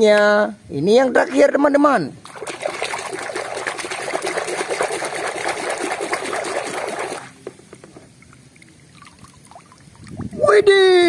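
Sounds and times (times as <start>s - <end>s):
toy splashing in water: 2.2s - 7.4s.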